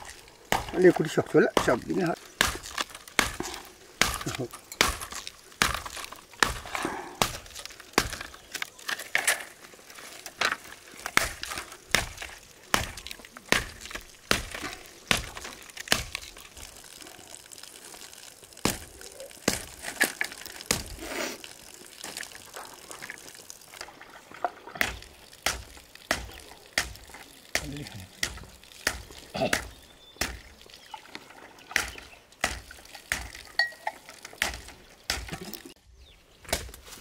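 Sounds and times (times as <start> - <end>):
bamboo chopping cracks: 0.0 - 0.9, 1.6 - 8.7, 10.4 - 16.4, 18.6 - 21.0, 24.8 - 30.5, 31.8 - 33.5, 34.4 - 35.7, 36.4 - 36.9.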